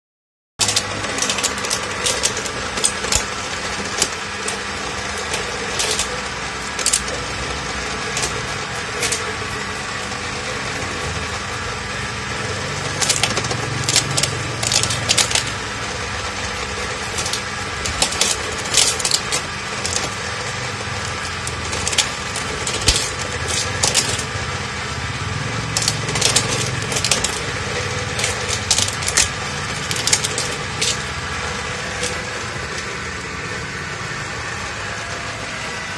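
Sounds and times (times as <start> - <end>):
machine motor drone: 0.6 - 35.9
coconut shell cracking and scraping: 16.6 - 24.6.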